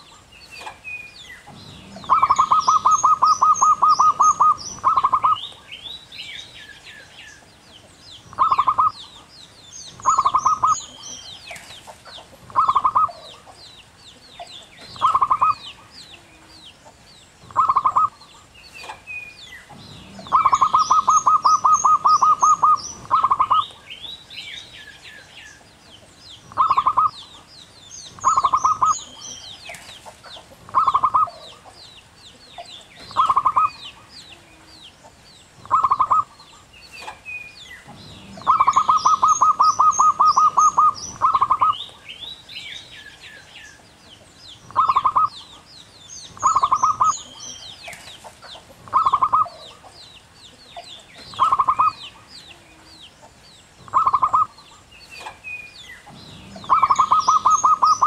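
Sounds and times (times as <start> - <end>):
birds chirping: 0.0 - 58.0
dove staccato cooing: 1.4 - 5.6, 8.3 - 9.3, 9.9 - 13.6, 14.3 - 19.0, 19.6 - 23.8, 26.5 - 27.5, 28.1 - 31.8, 32.6 - 37.2, 37.8 - 41.9, 44.7 - 45.7, 46.3 - 50.0, 50.7 - 52.9, 53.8 - 55.4, 56.0 - 58.0.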